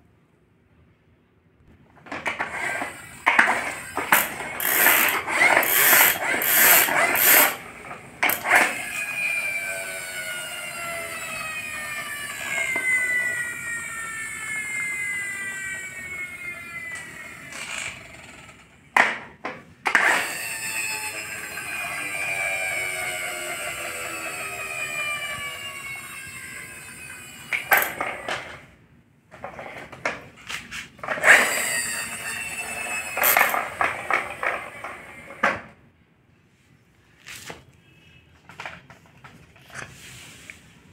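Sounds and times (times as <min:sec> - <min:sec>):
toy car wheels grinding on floor: 0:02.1 - 0:16.3, 0:16.9 - 0:18.7, 0:19.8 - 0:28.6, 0:29.3 - 0:35.4
toy car wheels spinning whine: 0:02.2 - 0:18.8, 0:19.8 - 0:28.7, 0:31.0 - 0:35.4.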